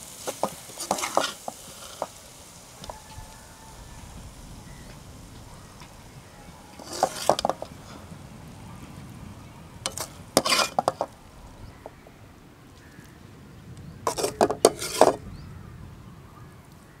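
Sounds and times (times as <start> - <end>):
metal ladle scraping a pan: 0.2 - 2.2, 6.8 - 7.8, 9.8 - 11.2, 14.1 - 15.2.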